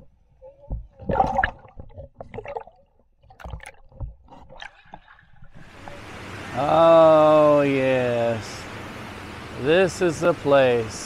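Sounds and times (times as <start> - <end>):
water gurgling and splashing: 0.0 - 6.2.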